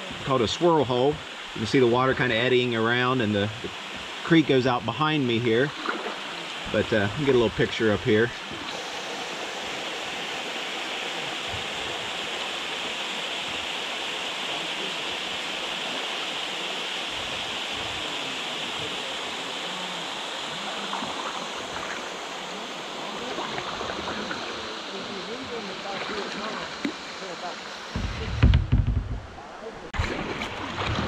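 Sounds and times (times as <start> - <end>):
small waterfall rushing: 0.0 - 28.8.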